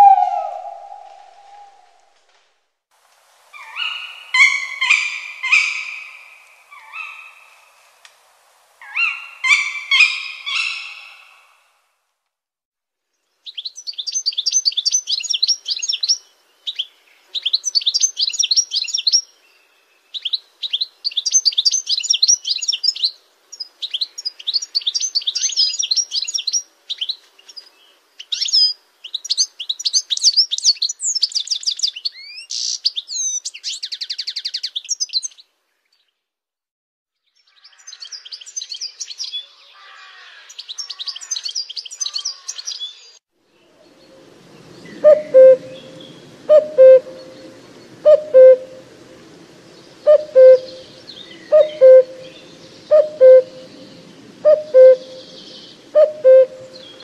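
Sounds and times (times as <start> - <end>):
songbirds singing: 13.4 - 36.2, 37.2 - 57.0.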